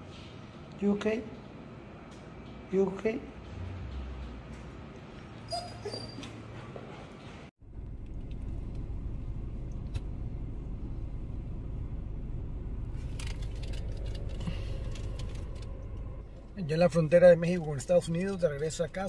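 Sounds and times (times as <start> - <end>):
car road noise: 7.6 - 19.0.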